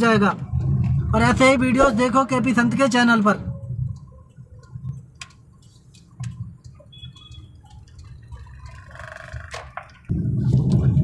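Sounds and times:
car road and engine rumble: 0:00.0 - 0:11.0
light clicks and ticks: 0:03.7 - 0:08.8.

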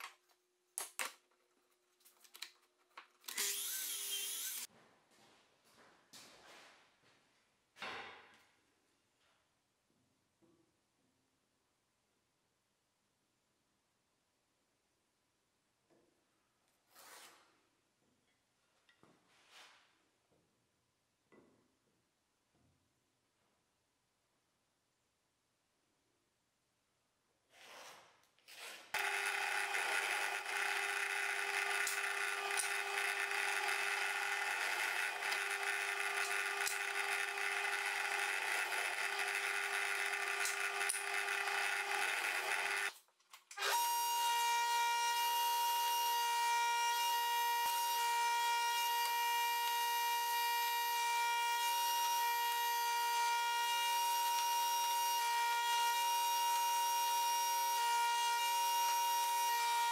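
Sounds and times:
router high whine: 0:03.3 - 0:04.7, 0:29.0 - 0:42.9, 0:43.6 - 0:59.9
drill press running: 0:29.0 - 0:42.9.

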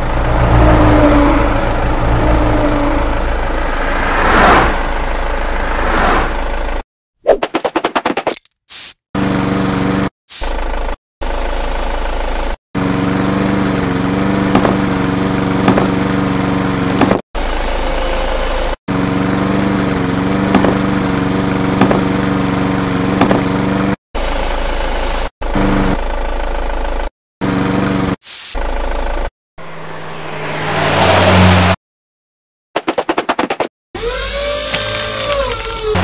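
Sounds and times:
sharp knocks: 0:14.5 - 0:14.8, 0:15.6 - 0:16.0, 0:20.5 - 0:20.8, 0:21.8 - 0:22.2, 0:23.2 - 0:23.5.

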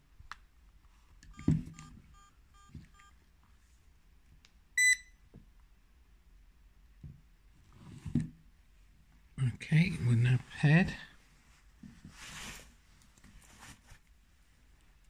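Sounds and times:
faint short electronic beeps: 0:04.8 - 0:05.2.

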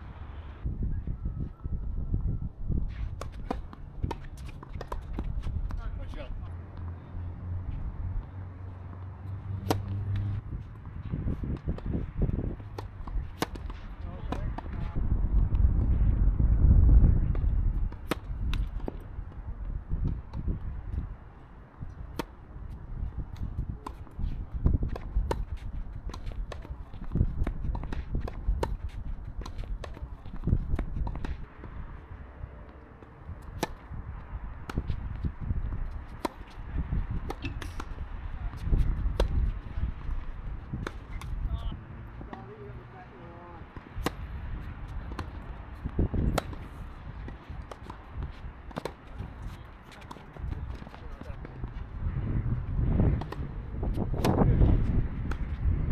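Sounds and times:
racquets hitting tennis ball: 0:02.9 - 0:07.0, 0:08.2 - 0:15.9, 0:17.3 - 0:52.1, 0:52.7 - 0:55.9
tennis ball bouncing on court: 0:03.2 - 0:07.0, 0:08.2 - 0:15.9, 0:17.3 - 0:19.4, 0:23.3 - 0:32.0, 0:32.6 - 0:41.6, 0:43.6 - 0:51.9, 0:53.0 - 0:55.7
ball bounces: 0:08.9 - 0:10.3.

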